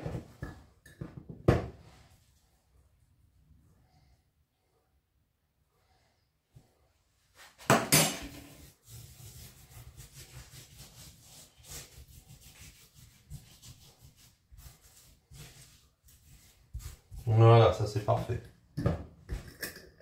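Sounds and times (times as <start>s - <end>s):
hands rubbing seasoning on meat: 8.6s - 18.4s.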